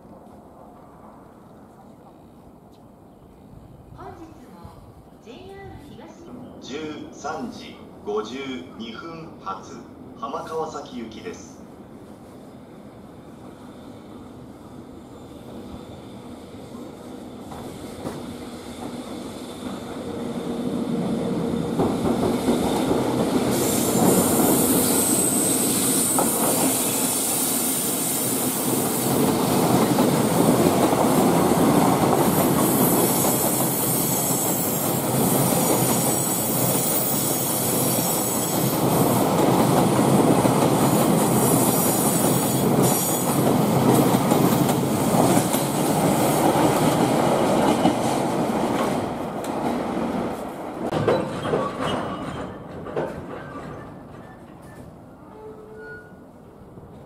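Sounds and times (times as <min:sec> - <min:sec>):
wheels clattering over rail joints: 0:50.9 - 0:54.8.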